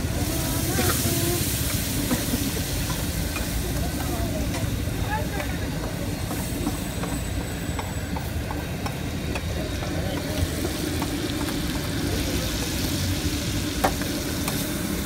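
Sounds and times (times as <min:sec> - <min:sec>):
beans sizzling on a griddle: 0:00.0 - 0:15.0.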